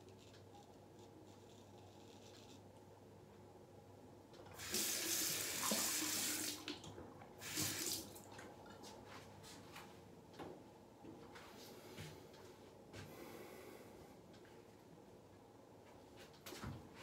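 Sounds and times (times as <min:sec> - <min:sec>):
sink tap water running: 0:04.5 - 0:08.2.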